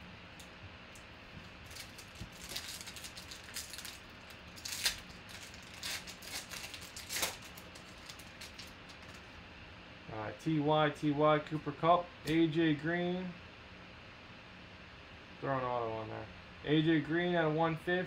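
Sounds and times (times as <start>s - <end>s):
foil wrapper crinkling and tearing: 1.4s - 9.4s.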